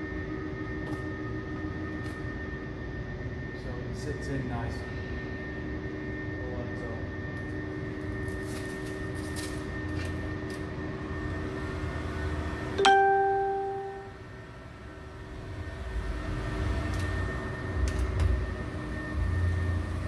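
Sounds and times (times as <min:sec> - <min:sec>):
heat gun fan whining: 0:05.1 - 0:12.4, 0:16.0 - 0:20.0.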